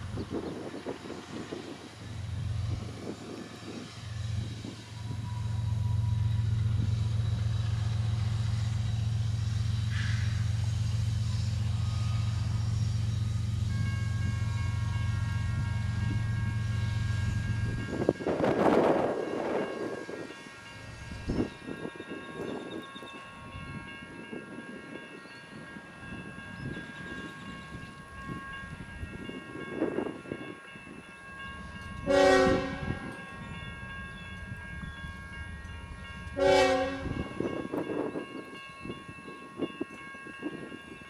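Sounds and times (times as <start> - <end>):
freight train running by: 0.0 - 41.0
locomotive air horn blasts: 32.0 - 33.1, 36.4 - 37.3.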